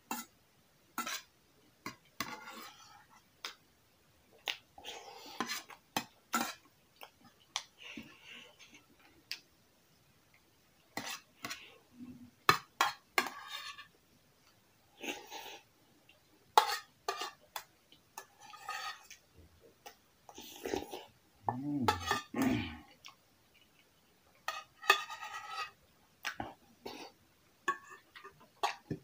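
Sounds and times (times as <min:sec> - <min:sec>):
metal spoon scraping bowl: 0:01.0 - 0:01.3, 0:18.2 - 0:19.1, 0:21.9 - 0:22.4, 0:24.5 - 0:25.8
slurping and chewing: 0:20.3 - 0:23.9.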